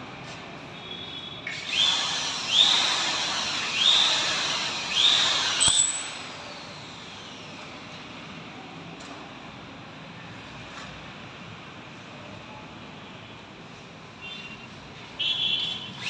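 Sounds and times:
drill click: 0:01.5 - 0:06.9
power drill boring into ceiling: 0:01.5 - 0:07.5.

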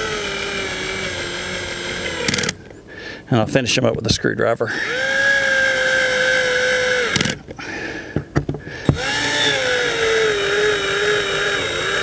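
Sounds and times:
cordless drill motor whine: 0:00.0 - 0:02.7, 0:04.7 - 0:07.7, 0:08.8 - 0:12.0
sharp clicks and knocks: 0:07.1 - 0:09.1.

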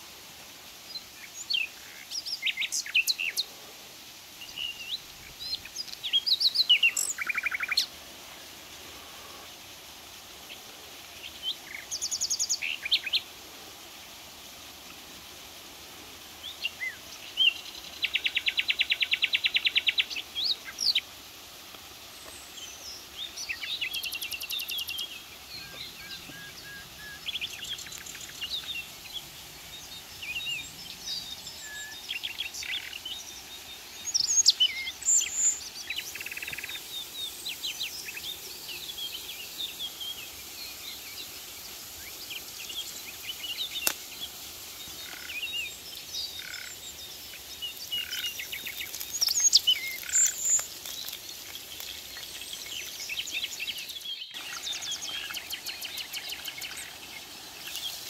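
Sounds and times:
faint outdoor hiss: 0:00.0 - 0:58.0
small birds chirping and whistling: 0:04.4 - 0:07.9, 0:11.2 - 0:13.3, 0:16.4 - 0:21.1, 0:22.1 - 0:58.0.

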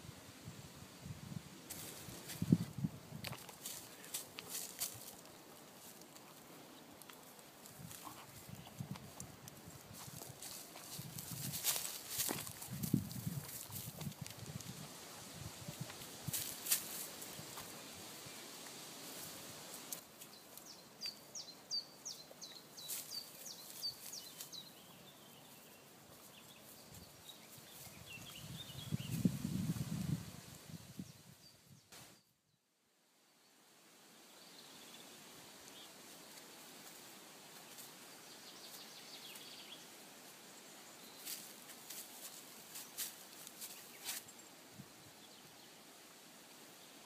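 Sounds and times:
breezy woodland hiss: 0:00.0 - 0:32.3, 0:33.0 - 0:47.0
sharp leaf rustles: 0:01.3 - 0:20.7, 0:35.1 - 0:44.5.

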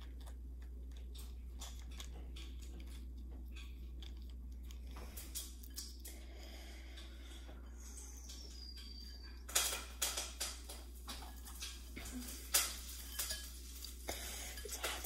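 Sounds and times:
crispy fried chicken crackling: 0:09.5 - 0:15.0.

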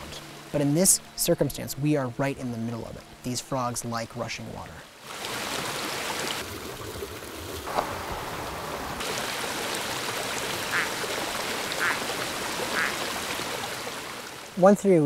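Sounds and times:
mountain stream rushing: 0:02.3 - 0:15.0
frog calling: 0:10.6 - 0:13.1.

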